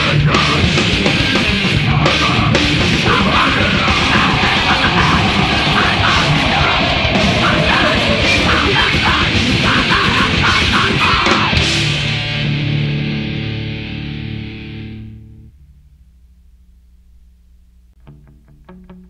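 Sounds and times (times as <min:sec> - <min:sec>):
distorted guitars: 0:00.0 - 0:19.0
screamed vocals: 0:02.0 - 0:11.8
pounding drums: 0:02.6 - 0:11.7.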